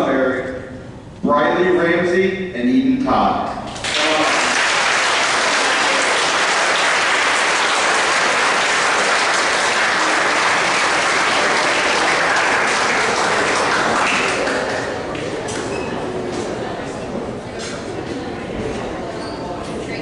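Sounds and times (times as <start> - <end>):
crowd applauding: 3.8 - 15.4.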